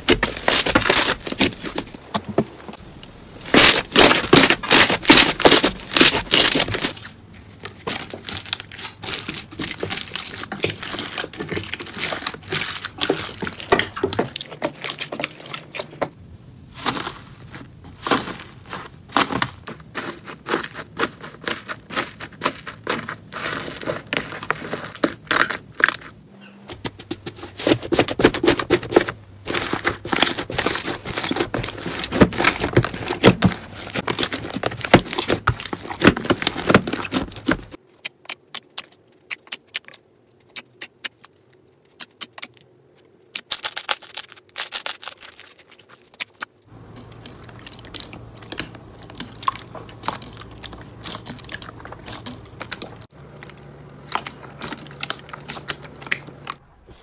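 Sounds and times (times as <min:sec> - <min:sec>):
slime crackling and popping: 0:07.7 - 0:16.0.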